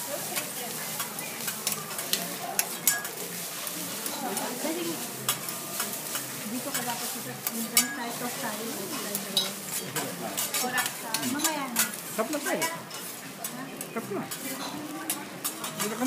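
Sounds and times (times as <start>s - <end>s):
food sizzling: 0.0s - 16.0s
metal spatulas scraping on griddle: 0.1s - 16.0s.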